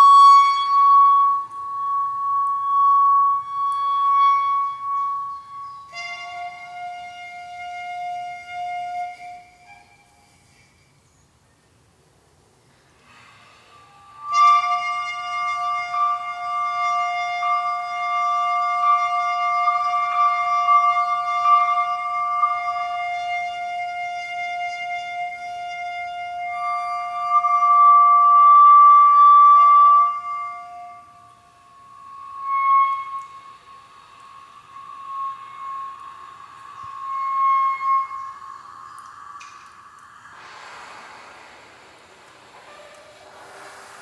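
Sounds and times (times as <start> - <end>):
long held note: 13.5 - 40.4
higher wavering sliding pitch: 26.4 - 44.0.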